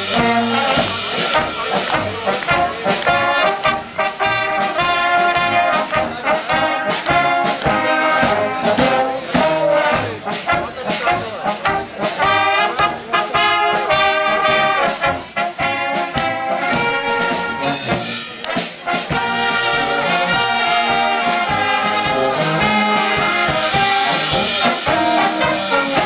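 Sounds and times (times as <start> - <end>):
brass band playing: 0.0 - 26.0
steady drum beat: 0.0 - 26.0.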